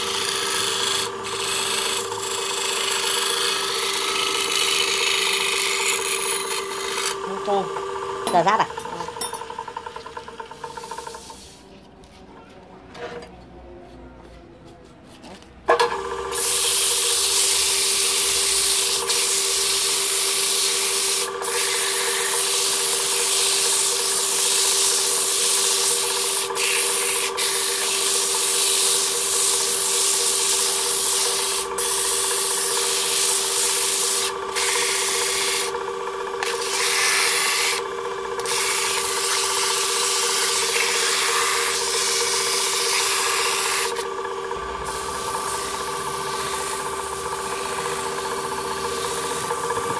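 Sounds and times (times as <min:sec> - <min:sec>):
sandpaper hissing on spinning wood: 0:00.0 - 0:07.2, 0:16.3 - 0:35.8, 0:36.4 - 0:37.8, 0:38.4 - 0:44.1, 0:44.7 - 0:49.9
lathe motor hum: 0:00.0 - 0:11.7, 0:15.7 - 0:49.9.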